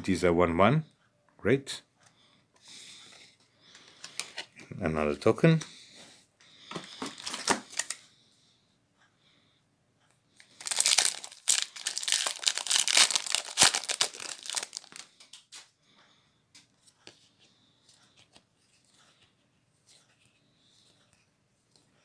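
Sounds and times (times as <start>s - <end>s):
foil wrapper crinkling: 7.0s - 8.0s, 10.5s - 15.4s.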